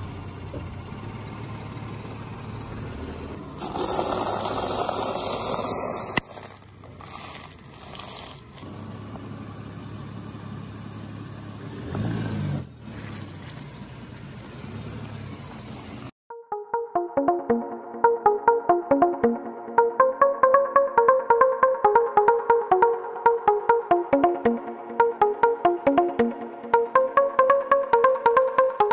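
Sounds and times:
car engine running low: 0.0 - 5.2, 6.5 - 16.2
tyre crunching dry noodles: 3.6 - 8.8.

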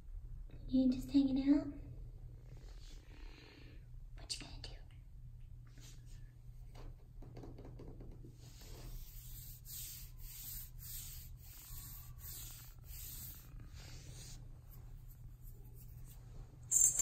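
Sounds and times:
low steady hum: 0.0 - 17.0
scratchy rubbing: 8.4 - 16.9.

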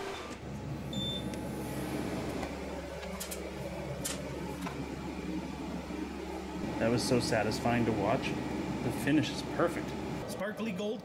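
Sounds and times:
laser cutter fans humming: 0.0 - 11.0
short beep: 0.9 - 1.3.

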